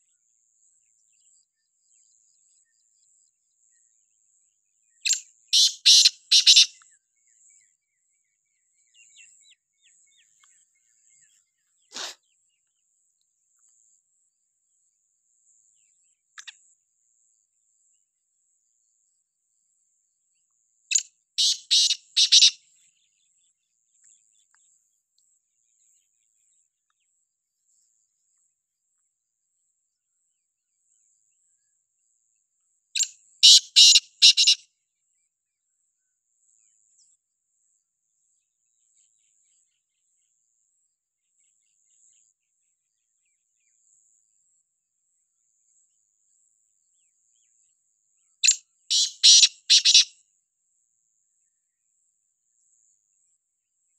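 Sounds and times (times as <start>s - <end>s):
francolin calling: 5.0s - 6.8s, 20.9s - 22.6s, 33.0s - 34.6s, 48.4s - 50.1s.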